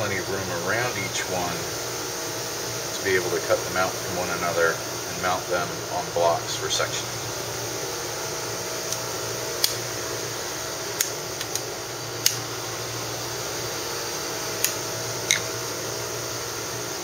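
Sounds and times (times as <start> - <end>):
ventilation fan hum: 0.0 - 17.0.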